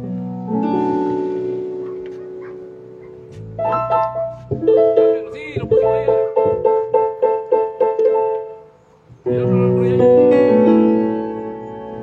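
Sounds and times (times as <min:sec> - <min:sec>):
keyboard piano chords: 0:00.0 - 0:12.0.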